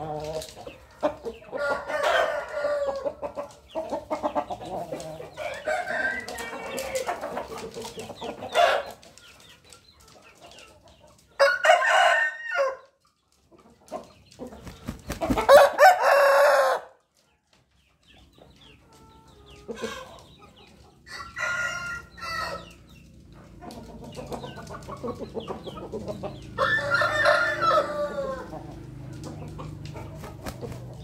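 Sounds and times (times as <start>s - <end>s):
rooster clucking and calling: 0.0s - 9.0s, 11.4s - 12.9s, 14.4s - 17.0s, 23.7s - 31.0s
rooster crowing: 1.6s - 3.0s, 5.4s - 7.0s, 11.4s - 12.8s, 15.5s - 16.9s, 21.1s - 22.6s, 26.6s - 28.6s.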